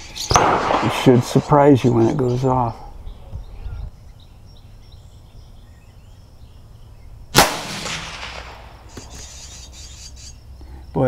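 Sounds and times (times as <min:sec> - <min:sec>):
rifle shot with echo: 0:00.3 - 0:01.9, 0:07.3 - 0:09.0.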